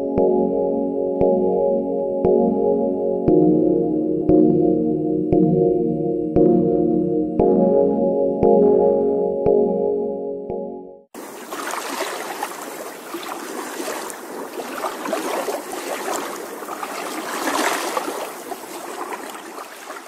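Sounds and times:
sea water splashing: 0:11.2 - 0:20.0.

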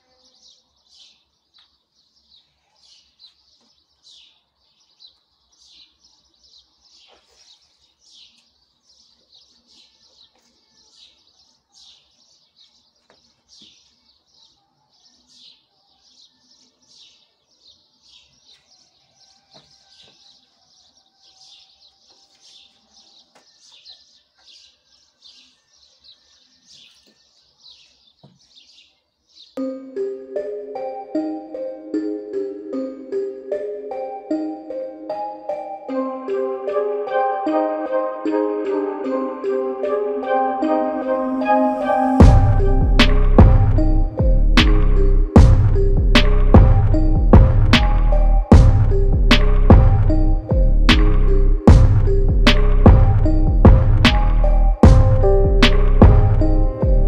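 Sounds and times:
small bird chirping: 0:00.0 - 0:29.6.

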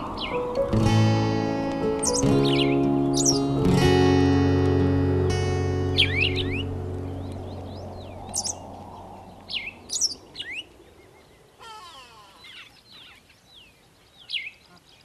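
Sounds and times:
music track: 0:00.0 - 0:08.6
small birds chirping: 0:00.0 - 0:15.0.

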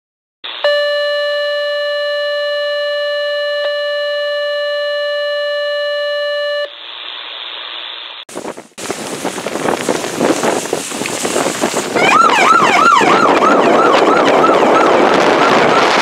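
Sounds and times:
steady electronic beep tone: 0:00.6 - 0:06.7
hiss: 0:06.7 - 0:12.0.

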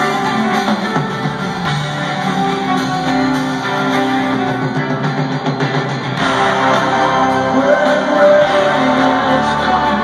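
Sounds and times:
distant echoing live rock band: 0:00.0 - 0:10.0.

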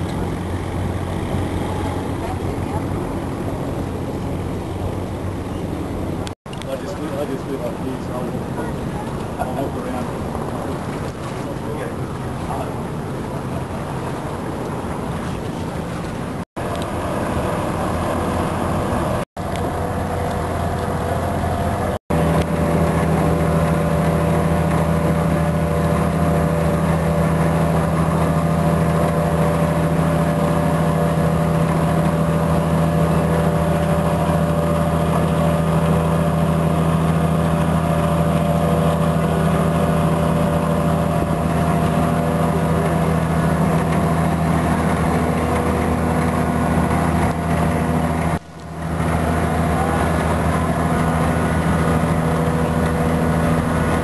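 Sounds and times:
boat engine running: 0:00.0 - 0:54.0.

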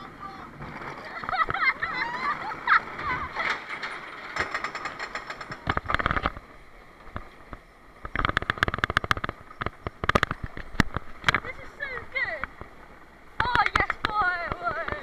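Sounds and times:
conveyor lift clattering: 0:00.0 - 0:06.3.

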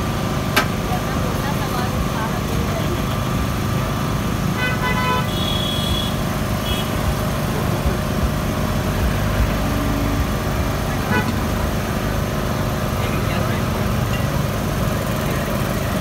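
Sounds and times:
rumble of passing vehicles: 0:00.0 - 0:16.0
short horn toots: 0:04.6 - 0:07.0, 0:11.0 - 0:11.5.

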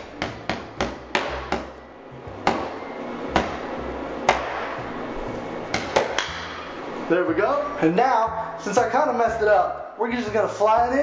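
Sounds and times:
cardboard tube being whacked: 0:00.2 - 0:01.7.

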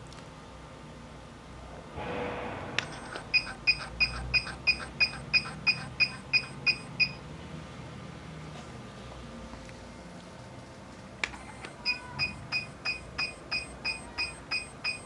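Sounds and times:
short machine beeps: 0:02.8 - 0:07.2, 0:11.8 - 0:15.0.

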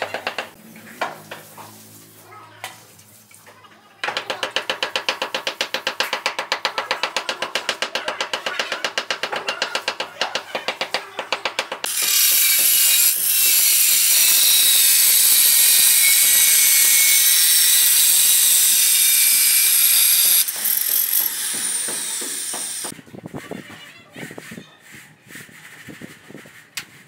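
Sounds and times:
angle grinder cutting tile: 0:10.8 - 0:22.9.

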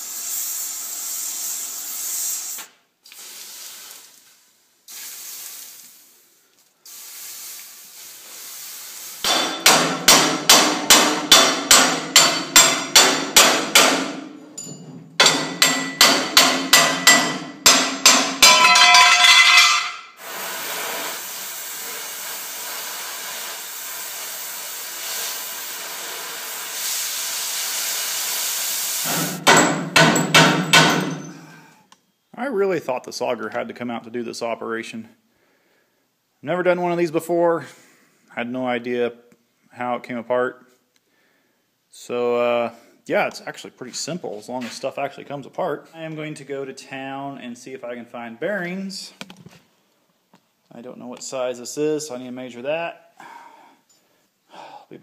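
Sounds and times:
torch hissing: 0:00.0 - 0:04.2, 0:20.2 - 0:29.2
metal-on-metal hammer blows: 0:09.2 - 0:20.2.

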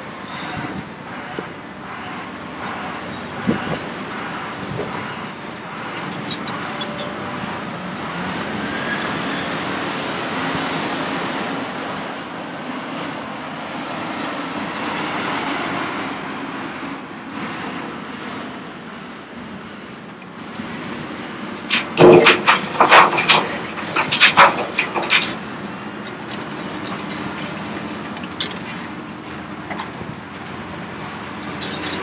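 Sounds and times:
excavator engine and hydraulics: 0:00.0 - 0:32.0
clatter: 0:21.0 - 0:32.0
soil and rock dumped in truck: 0:21.6 - 0:25.4.

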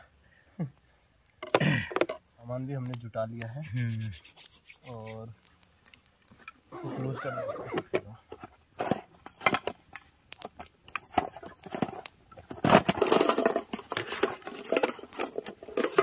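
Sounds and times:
camping gear knocks and clicks: 0:01.4 - 0:02.2.

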